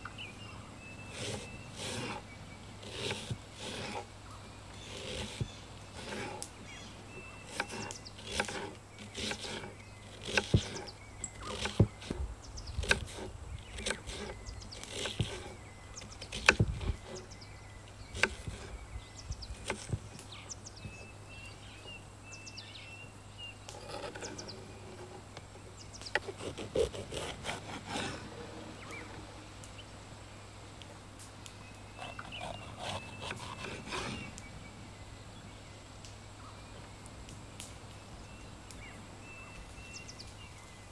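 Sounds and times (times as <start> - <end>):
knife chopping on wooden board: 7.5 - 12.2, 16.3 - 17.2, 18.2 - 18.7.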